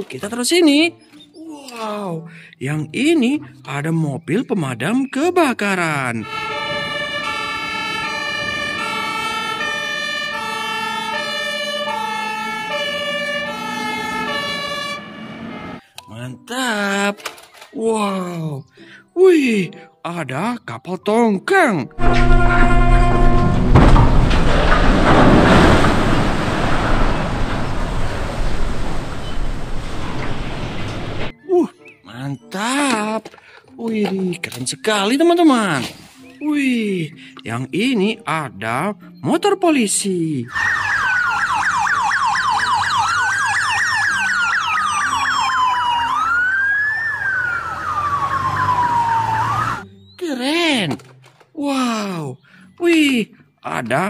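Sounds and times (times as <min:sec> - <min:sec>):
siren wailing: 0:06.0 - 0:15.8, 0:22.0 - 0:24.1, 0:40.5 - 0:49.8
siren yelping: 0:06.1 - 0:15.8, 0:40.5 - 0:49.8
ship splashing into water: 0:22.0 - 0:31.3.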